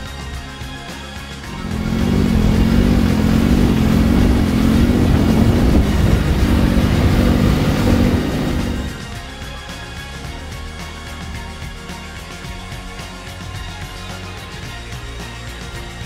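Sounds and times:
tractor diesel engine running: 1.5s - 9.4s.

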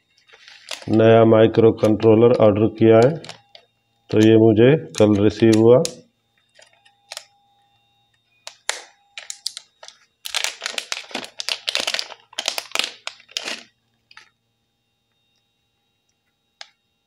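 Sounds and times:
plastic bag crinkling: 0.2s - 3.6s, 4.9s - 7.3s, 8.5s - 14.3s.

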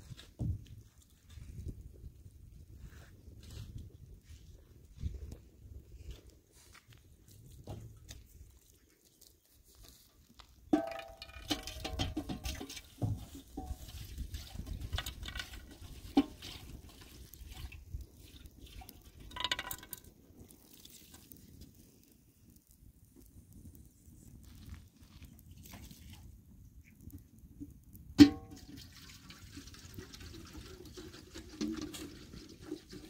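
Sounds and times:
water pouring and splashing: 10.7s - 22.1s, 24.5s - 26.3s, 28.2s - 33.0s.

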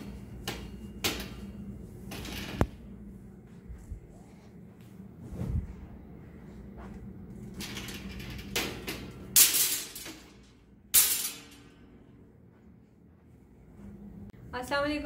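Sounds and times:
clothes rustling on metal rack: 7.3s - 12.1s.

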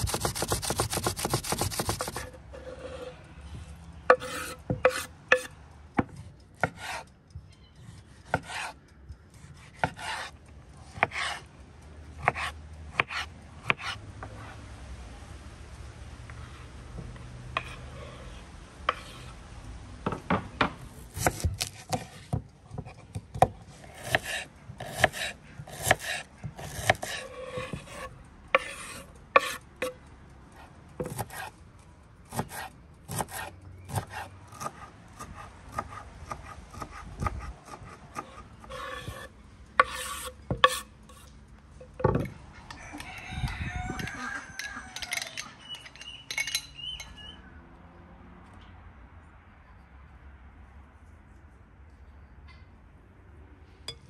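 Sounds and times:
knife chopping on wooden board: 0.0s - 2.3s, 9.5s - 10.3s, 11.0s - 11.4s, 20.3s - 29.6s, 31.0s - 31.5s, 32.3s - 41.2s
rooster crowing: 42.6s - 45.8s.

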